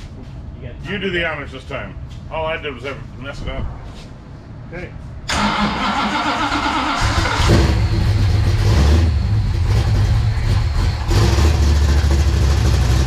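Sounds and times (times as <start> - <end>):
car engine revving: 5.3 - 13.0.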